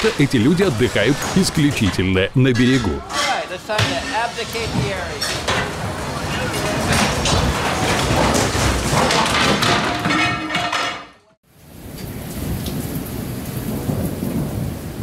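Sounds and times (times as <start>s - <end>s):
heavy rain: 0.0s - 1.8s, 11.5s - 15.0s
furniture clattering and banging: 3.0s - 11.2s
thunder: 11.7s - 15.0s.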